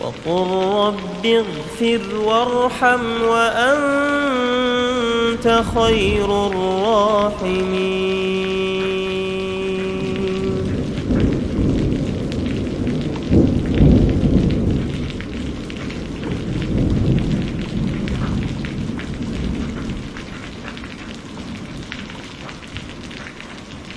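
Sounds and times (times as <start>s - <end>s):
steady rain: 0.0s - 23.9s
rolling thunder: 4.6s - 8.8s, 9.4s - 23.2s.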